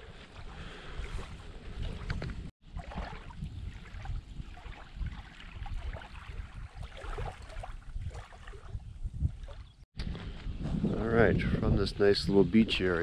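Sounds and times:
small waves lapping: 0.0 - 9.8
wind rumbling on microphone: 0.0 - 13.0.

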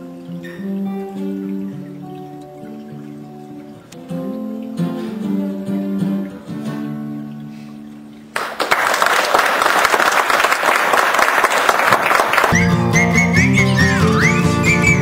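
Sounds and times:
acoustic guitar chords ringing: 0.0 - 8.3, 12.6 - 15.0
audience applause: 8.3 - 15.0.

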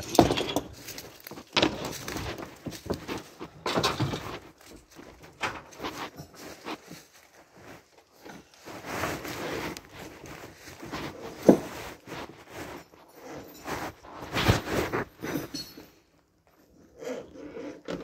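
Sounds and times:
knocking and scraping in truck cab: 11.1 - 12.1.

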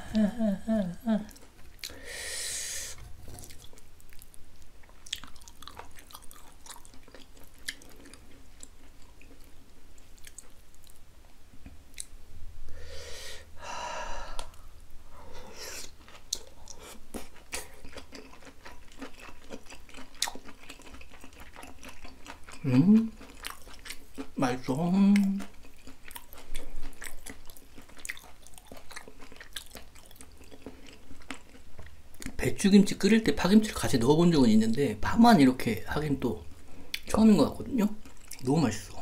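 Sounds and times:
close chewing with mouth clicks: 2.9 - 11.0, 11.6 - 12.1, 15.8 - 24.4, 25.2 - 32.4, 38.0 - 38.5.

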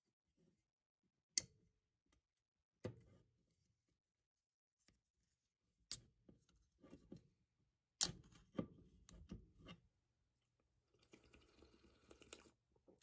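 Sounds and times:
soft drinking sounds: 10.9 - 13.0.

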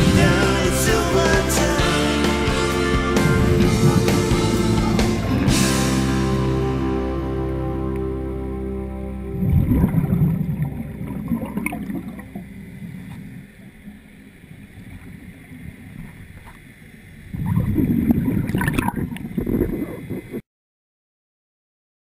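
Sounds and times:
underwater bubbles gurgling: 9.3 - 20.4.

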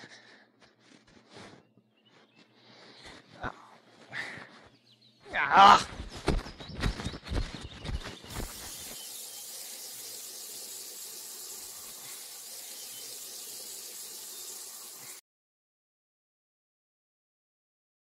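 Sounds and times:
water jet hissing on concrete: 8.2 - 15.2.

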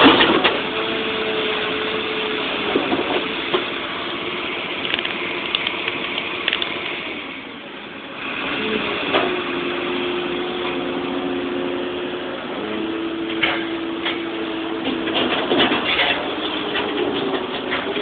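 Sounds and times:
excavator engine and hydraulics: 0.0 - 18.0
clatter: 14.8 - 18.0.

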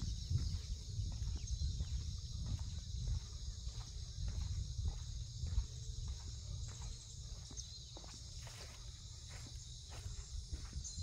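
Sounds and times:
low microphone rumble: 0.0 - 7.3
footsteps: 0.0 - 11.0
high-pitched insect chorus: 0.0 - 11.0.

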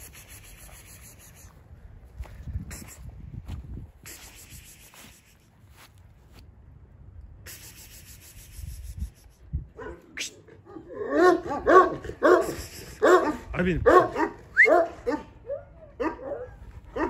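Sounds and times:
dog barking: 9.8 - 17.0.

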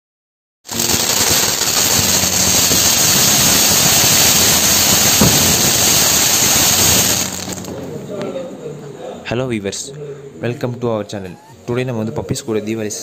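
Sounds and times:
firework pop: 0.7 - 7.8
firework fountain hissing: 0.7 - 7.9.

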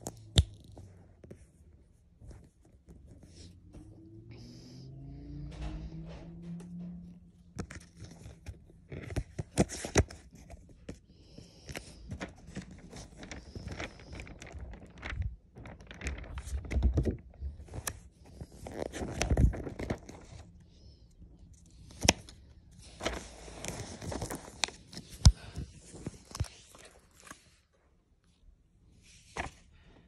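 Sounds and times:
low hum: 3.5 - 8.5
page turning: 7.5 - 20.5, 21.7 - 27.6, 29.2 - 29.6
glossy paper rustling and crinkling: 7.5 - 20.6, 21.6 - 27.8.

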